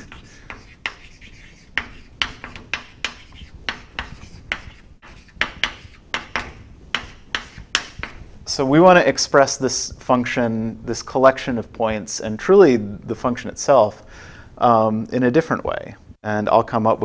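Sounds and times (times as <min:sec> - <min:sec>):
chalk tapping and scraping on chalkboard: 0:00.0 - 0:08.3.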